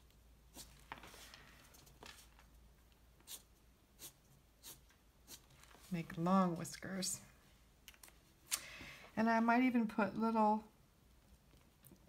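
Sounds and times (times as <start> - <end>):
pen strokes on paper: 3.2 - 5.5.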